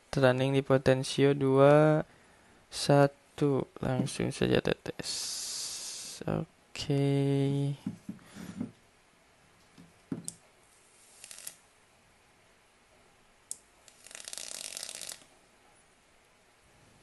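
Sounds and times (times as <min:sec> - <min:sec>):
vape coil crackling and sizzling: 0:11.0 - 0:11.6, 0:13.9 - 0:15.3.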